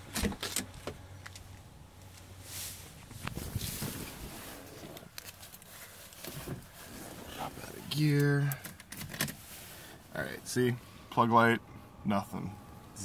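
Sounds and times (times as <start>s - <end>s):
rustling: 1.3s - 7.8s.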